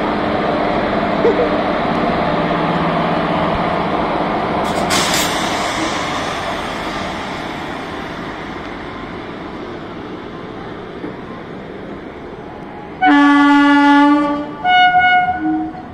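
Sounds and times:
train coaches rolling on rails: 0:00.0 - 0:15.9
locomotive horn: 0:13.0 - 0:15.9.

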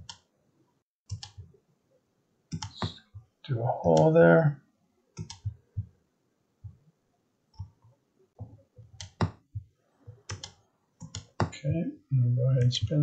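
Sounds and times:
computer mouse clicking: 0:00.0 - 0:00.3, 0:01.1 - 0:01.5, 0:02.5 - 0:03.0, 0:05.2 - 0:05.9, 0:07.5 - 0:09.4, 0:10.1 - 0:11.6.

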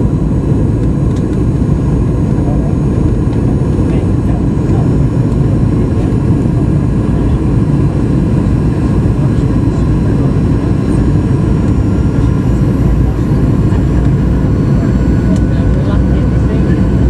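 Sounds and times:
jet engines and airflow rumble: 0:00.0 - 0:17.0.

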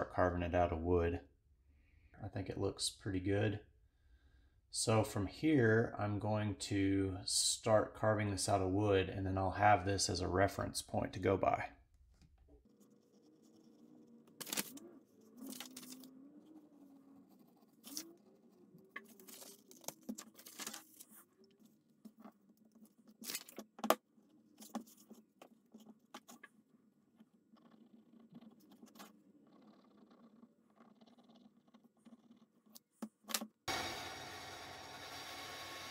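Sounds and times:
paper rustling: 0:12.7 - 0:16.1, 0:17.3 - 0:18.2, 0:18.9 - 0:23.9.

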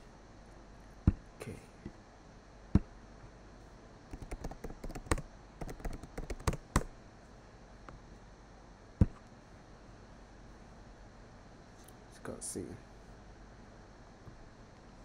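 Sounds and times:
keyboard typing: 0:04.1 - 0:06.9.

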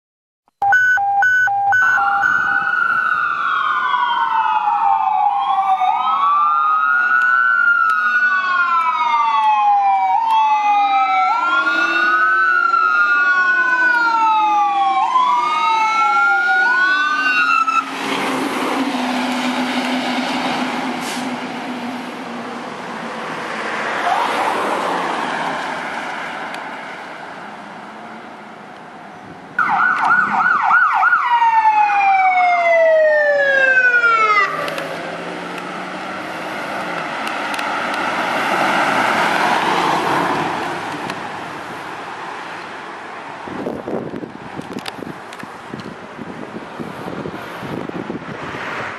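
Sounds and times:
ambulance siren: 0:00.6 - 0:20.9, 0:23.8 - 0:25.9, 0:29.6 - 0:41.1
fire engine sirens wailing: 0:00.6 - 0:28.4, 0:29.6 - 0:48.3
truck engine and tyres passing: 0:15.1 - 0:48.9.

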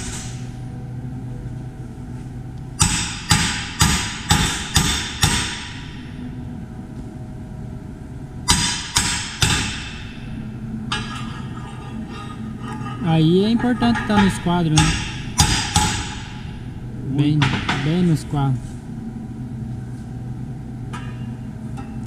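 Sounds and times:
hammer striking steel plates: 0:02.8 - 0:06.1, 0:08.5 - 0:10.3, 0:12.6 - 0:18.2.

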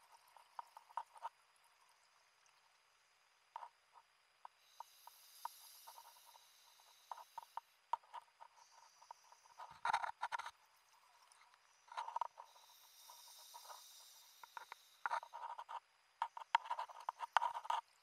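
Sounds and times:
soft underwater clicks and knocks: 0:00.0 - 0:01.4, 0:06.9 - 0:12.5, 0:13.1 - 0:18.0
soft hiss: 0:00.0 - 0:18.0.

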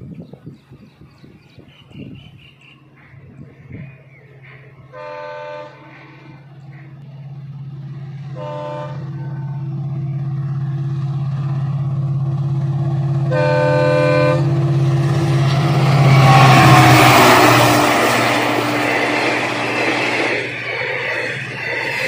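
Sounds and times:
diesel locomotive engine drone: 0:00.0 - 0:22.0
wheels rushing on rails: 0:00.0 - 0:22.0
locomotive air horn blasts: 0:04.9 - 0:06.5, 0:08.3 - 0:09.7, 0:13.2 - 0:14.7.

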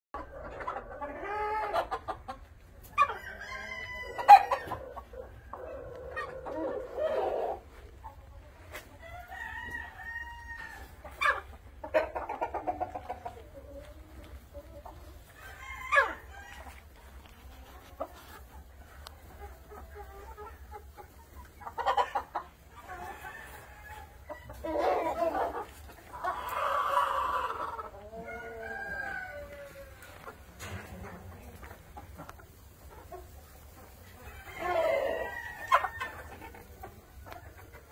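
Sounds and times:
chickens clucking: 0:00.1 - 0:37.9
rooster crowing: 0:28.2 - 0:29.8.

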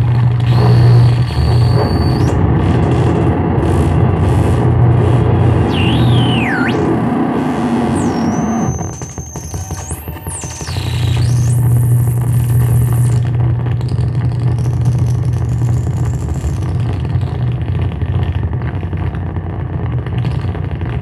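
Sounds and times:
loud low electronic drone: 0:00.0 - 0:20.9
dense electronic crackling: 0:00.0 - 0:21.0
high whistling tone: 0:00.5 - 0:02.4, 0:05.6 - 0:13.2
faint high tone: 0:05.7 - 0:06.9.

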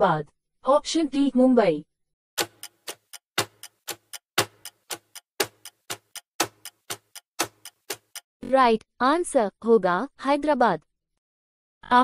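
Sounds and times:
countdown timer ticking: 0:02.4 - 0:08.2.

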